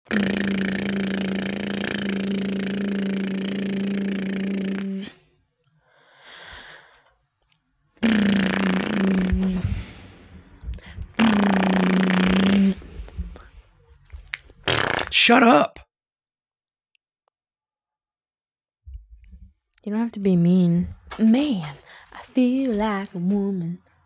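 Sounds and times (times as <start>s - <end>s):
faint breath: 5.1s - 7.2s, 9.4s - 11.2s, 21.8s - 22.2s
person humming a low note: 8.0s - 13.4s.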